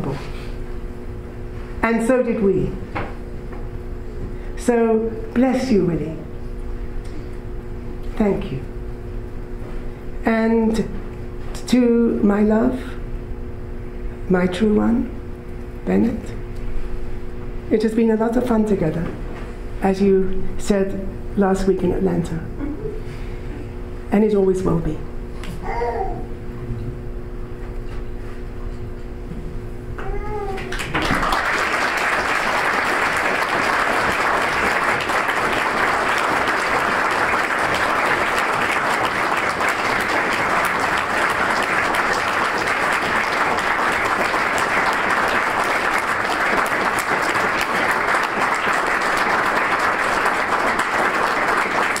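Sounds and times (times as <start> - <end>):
audience applauding: 30.7 - 52.0.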